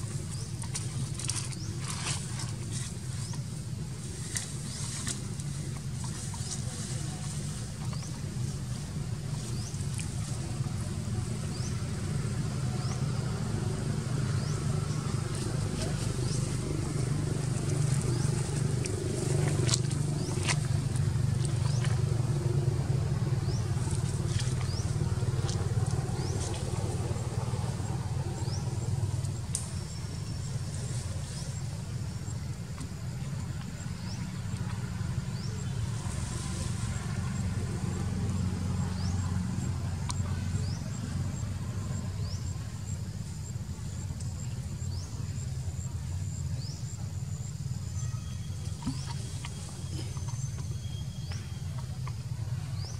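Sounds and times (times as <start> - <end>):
low engine hum: 0.0 - 52.9.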